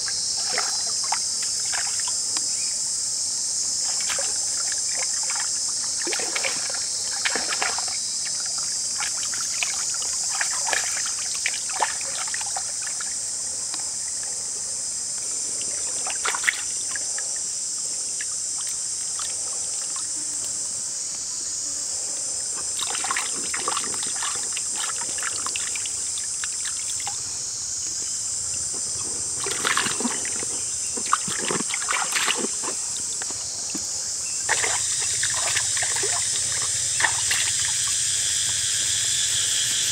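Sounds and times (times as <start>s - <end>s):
high-pitched insect drone: 0.0s - 39.9s
water splashing as hands rinse fish: 22.8s - 25.7s, 29.4s - 32.8s, 34.5s - 37.7s.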